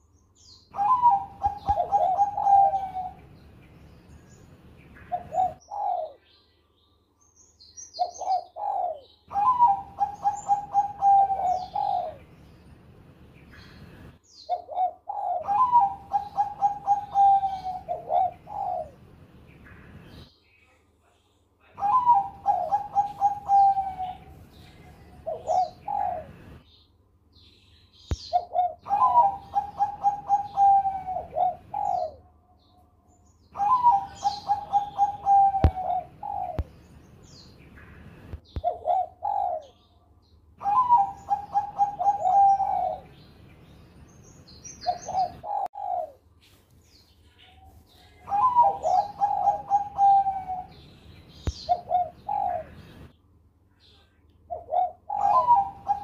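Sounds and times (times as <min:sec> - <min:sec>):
dove cooing: 0:00.7 - 0:03.3, 0:05.0 - 0:06.3, 0:08.0 - 0:12.3, 0:13.6 - 0:19.1, 0:21.8 - 0:26.6, 0:28.2 - 0:32.3, 0:33.5 - 0:36.7, 0:38.5 - 0:39.9, 0:40.6 - 0:43.2, 0:44.8 - 0:46.2, 0:47.4 - 0:50.8, 0:51.5 - 0:53.1, 0:54.5 - 0:56.0.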